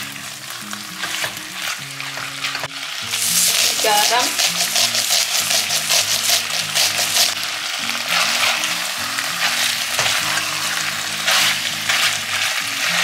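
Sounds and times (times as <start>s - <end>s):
meat sizzling in a pot: 0.0s - 13.0s
spatula stirring strokes: 3.0s - 7.4s, 8.0s - 13.0s.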